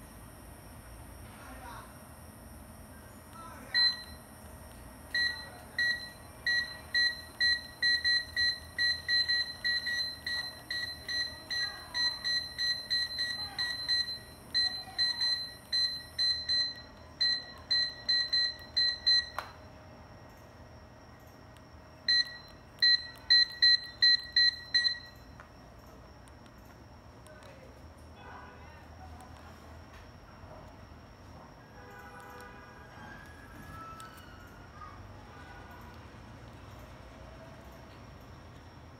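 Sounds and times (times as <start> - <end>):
short electronic beeps: 5.1 - 19.4, 22.1 - 25.3.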